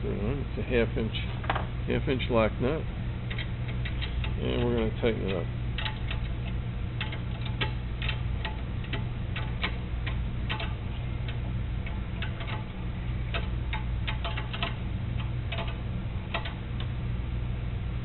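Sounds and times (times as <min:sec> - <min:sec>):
steady low hum: 0:00.0 - 0:18.0
ratchet wrench clicking: 0:03.3 - 0:12.7, 0:13.3 - 0:16.6.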